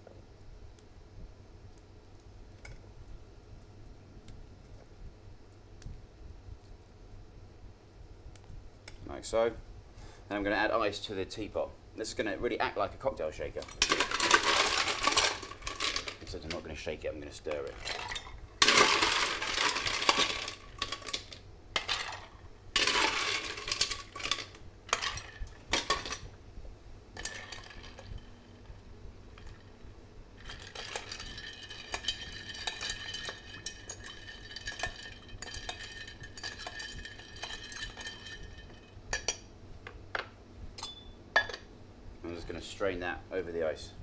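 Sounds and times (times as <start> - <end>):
ice clattering into teapot: 13.6 - 16.6, 17.5 - 26.3, 27.2 - 28.1, 30.4 - 39.3
spoon stirring ice tinkling: 13.8 - 16.6, 17.6 - 26.2, 30.4 - 39.3.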